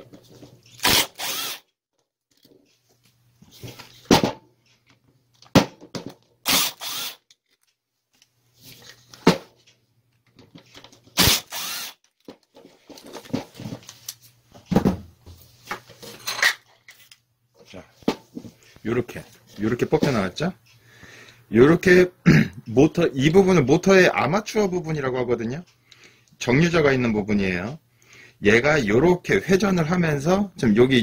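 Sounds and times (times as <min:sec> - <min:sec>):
clicks and knocks of tool parts: 0:03.7 - 0:06.4, 0:07.2 - 0:11.2, 0:12.0 - 0:14.8.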